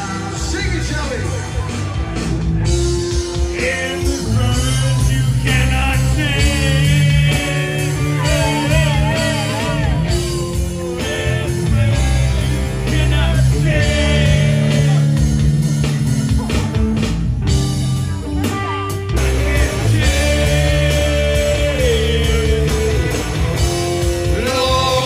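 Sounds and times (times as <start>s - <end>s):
bass guitar: 0.0s - 25.0s
electric guitars: 0.0s - 25.0s
person singing into a microphone: 3.5s - 15.2s, 18.6s - 23.4s, 24.2s - 25.0s.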